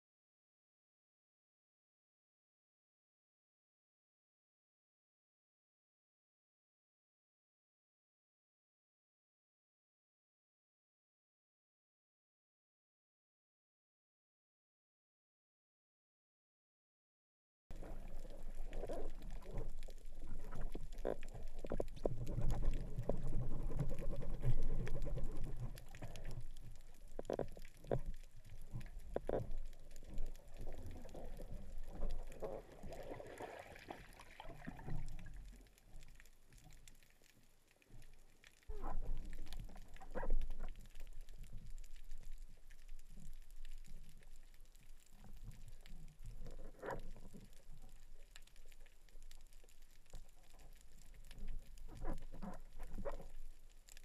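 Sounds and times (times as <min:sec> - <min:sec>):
underwater rumble of moving water: 0:17.7 - 0:54.0.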